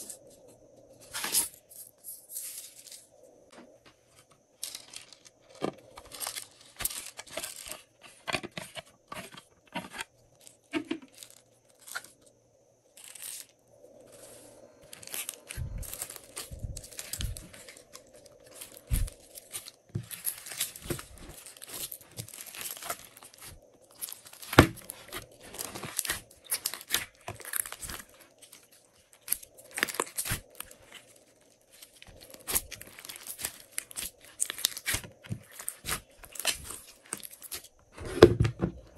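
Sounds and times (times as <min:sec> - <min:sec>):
slime crackling and popping: 0:20.0 - 0:28.1, 0:29.2 - 0:30.9, 0:32.0 - 0:37.6.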